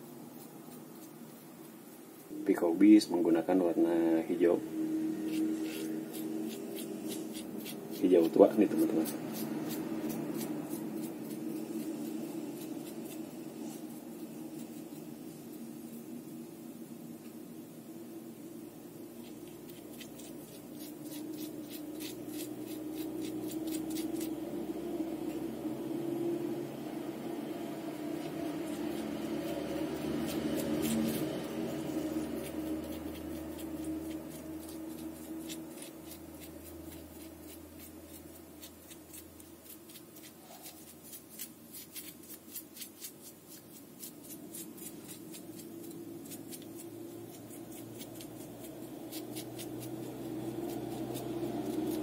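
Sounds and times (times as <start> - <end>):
paintbrush ticks and scratches: 0.0 - 16.1, 19.1 - 25.4, 27.8 - 52.0
steady low hum: 0.0 - 52.0.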